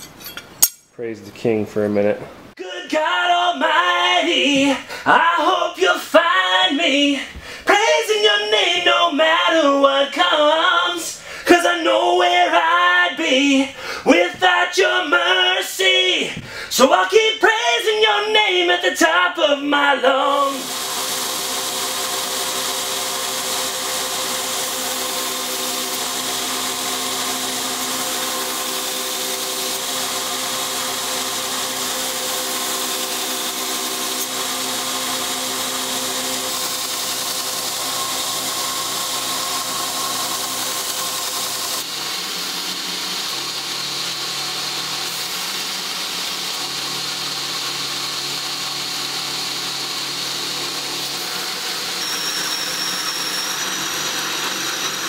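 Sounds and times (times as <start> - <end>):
belt grinder grinding steel blade: 0.0 - 0.9, 20.2 - 55.0.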